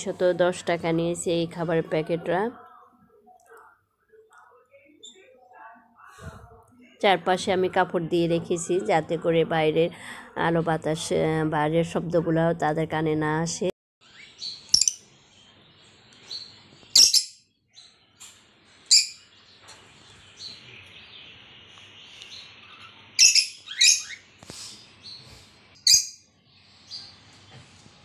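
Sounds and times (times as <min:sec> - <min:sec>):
lovebirds chirping: 0:14.0 - 0:18.2, 0:18.8 - 0:27.6.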